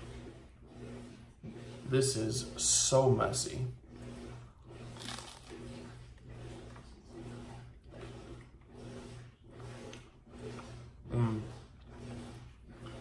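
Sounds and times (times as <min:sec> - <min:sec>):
person chewing: 0:04.9 - 0:05.6.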